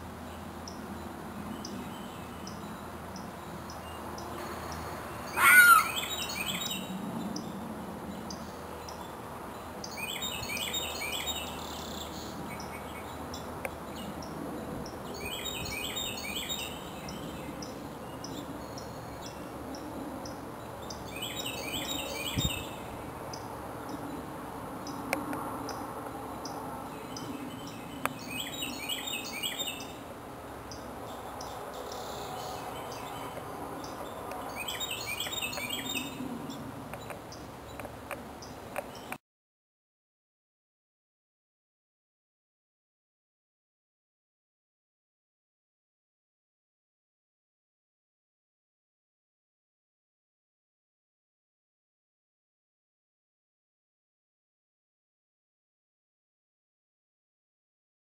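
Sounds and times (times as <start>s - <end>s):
bird singing high notes: 4.4s - 6.9s
loud brief shriek: 5.3s - 6.2s.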